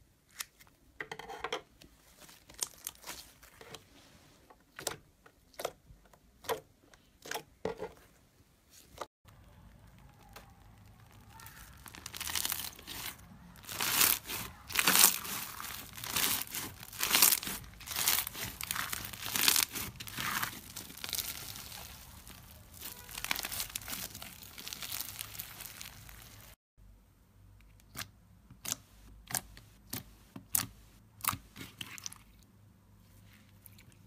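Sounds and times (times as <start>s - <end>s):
slime crackling and popping: 9.3s - 26.6s.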